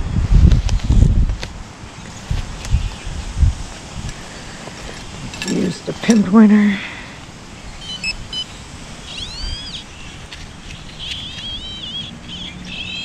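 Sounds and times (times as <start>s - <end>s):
bird whistling call: 7.7s - 13.0s
short electronic beeps: 7.8s - 9.8s.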